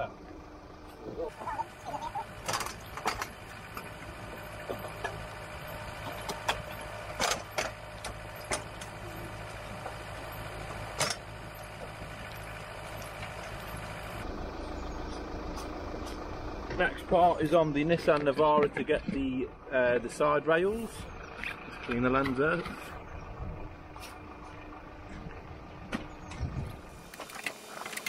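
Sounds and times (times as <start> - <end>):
vehicle engine idling: 0.0 - 28.0
metallic clanks and knocks: 6.0 - 9.0.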